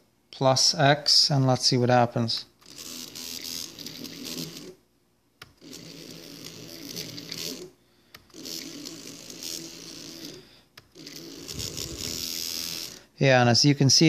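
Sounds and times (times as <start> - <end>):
stepper motor buzzing: 2.6 - 4.8, 5.5 - 13.1.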